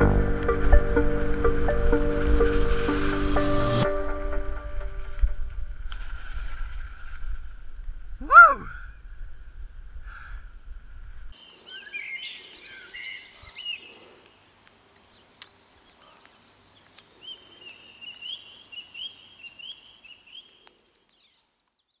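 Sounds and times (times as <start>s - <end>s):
wind rumble on microphone: 4.6s - 11.3s
songbirds chirping and singing: 11.4s - 22.0s.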